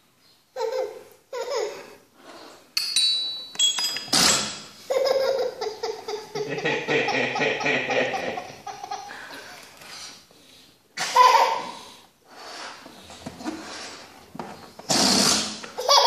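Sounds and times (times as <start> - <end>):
toddler laughing and squealing: 11.0 - 11.9, 15.8 - 16.0
balloon buzzing as air escapes: 14.9 - 15.6.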